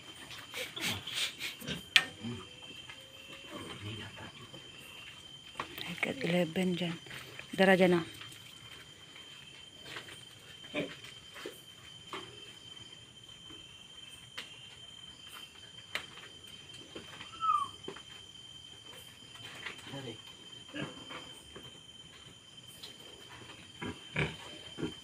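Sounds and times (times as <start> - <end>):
pigs grunting and squeaking: 0.2 - 4.6, 20.7 - 21.2, 23.6 - 25.0.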